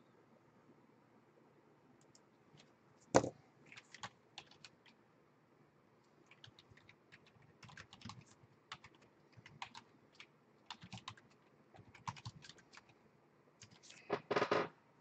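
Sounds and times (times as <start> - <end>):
keyboard typing: 3.7 - 5.0, 6.3 - 13.0, 13.6 - 14.7
keyboard clatter: 13.6 - 14.7.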